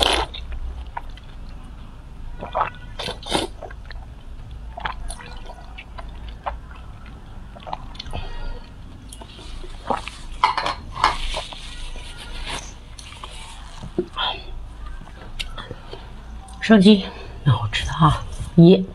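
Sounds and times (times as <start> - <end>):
mouth sucking and slurping: 2.4 - 3.8, 9.1 - 10.4, 11.0 - 14.6.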